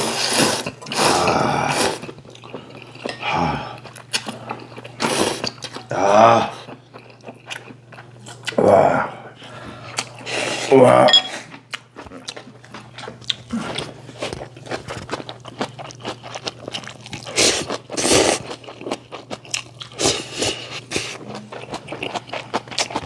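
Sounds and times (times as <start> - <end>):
noodles being slurped: 0.0 - 3.1, 13.6 - 18.7.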